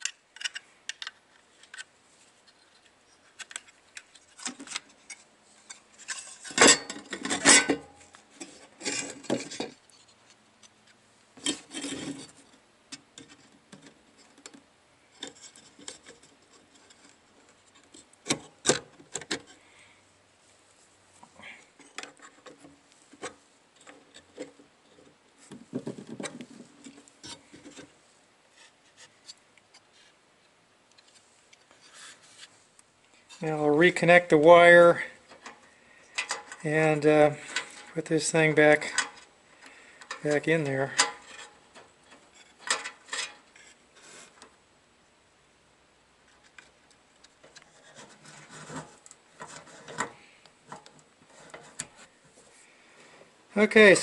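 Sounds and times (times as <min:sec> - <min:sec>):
metal bracket scraping and clicking: 0:00.0 - 0:12.5, 0:33.3 - 0:44.6, 0:46.3 - 0:52.1
rubbing and clatter: 0:46.3 - 0:52.5.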